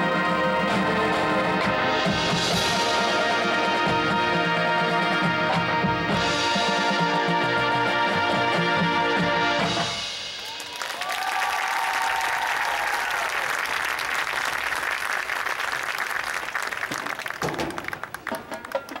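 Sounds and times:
marching band percussion hits: 0.9s - 10.6s
audience applauding and cheering: 10.2s - 19.0s.

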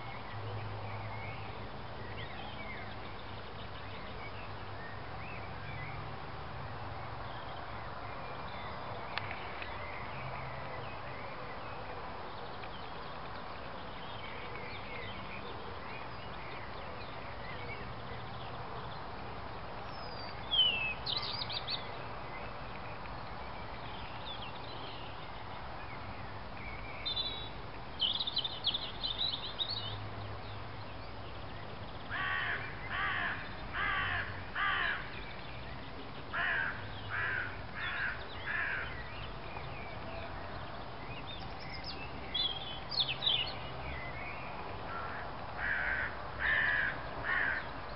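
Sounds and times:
steady outdoor hiss: 0.0s - 47.9s.

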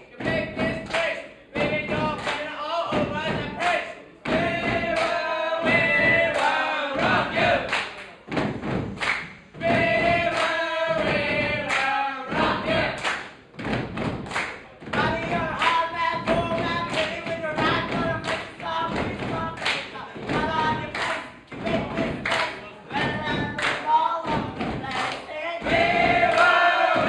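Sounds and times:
boys singing together: 0.0s - 7.8s, 9.6s - 13.2s, 14.9s - 27.0s
thumps on stage: 0.2s - 27.0s.

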